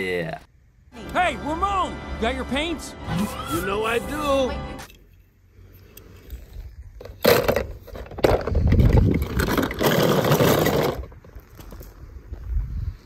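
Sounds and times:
toy car scraping plastic: 7.0s - 11.2s.

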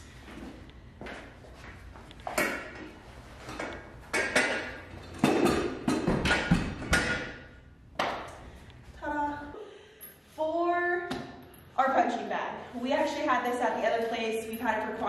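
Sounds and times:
metal clanks and thuds: 3.5s - 7.4s.

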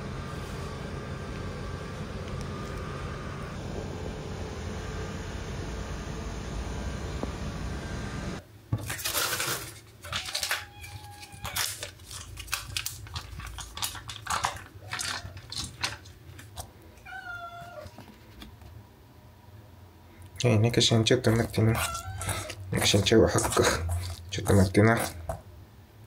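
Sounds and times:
foil pouch rustling: 8.8s - 16.6s
food clicking in metal bowls: 8.9s - 16.7s
cat meowing: 10.1s - 11.8s, 17.0s - 17.9s, 21.7s - 22.6s.

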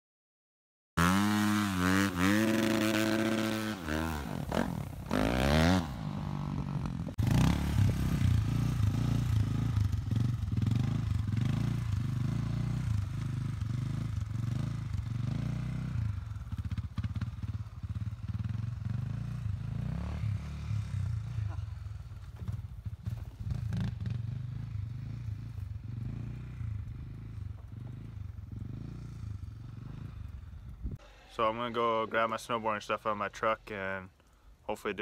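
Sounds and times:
dirt bike engine revving: 1.0s - 30.8s
atv engine pulsing: 1.0s - 31.6s.

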